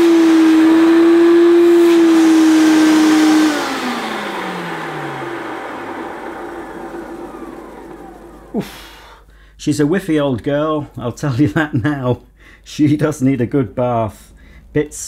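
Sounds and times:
vacuum cleaner motor whine: 0.0 - 9.1.

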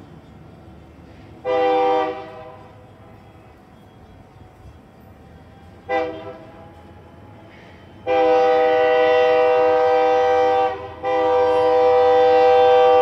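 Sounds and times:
locomotive air horn blast: 1.4 - 2.6, 5.9 - 6.6, 7.5 - 13.0.

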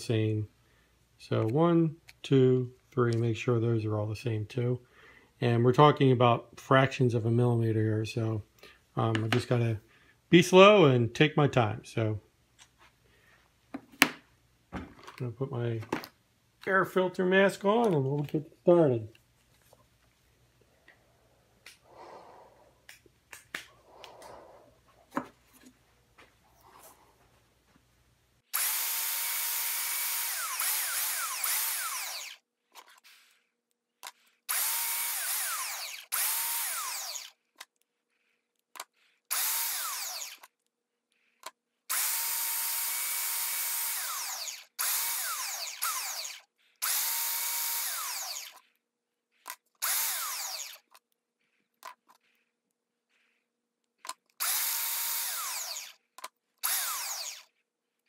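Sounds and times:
belt sander sanding wood: 28.6 - 32.4, 34.5 - 37.3, 39.3 - 40.4, 43.9 - 48.6, 49.8 - 51.0, 54.5 - 56.0, 56.6 - 57.6.

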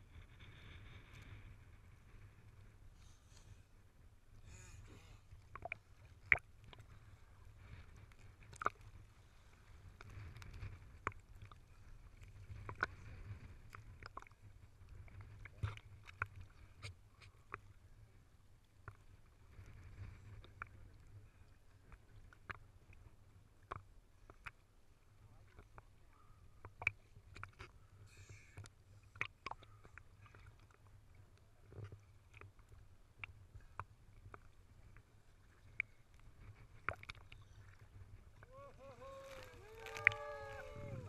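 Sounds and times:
sea water lapping: 34.7 - 41.0
small splashes: 38.4 - 41.0.

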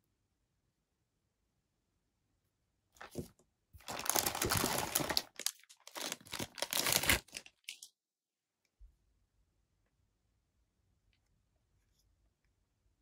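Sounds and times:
plastic bag crinkling: 3.0 - 7.9.

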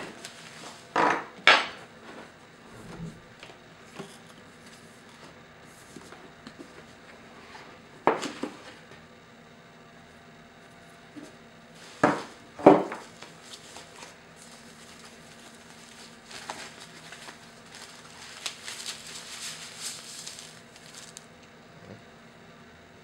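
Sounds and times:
crinkly foam rustling: 13.0 - 21.3.

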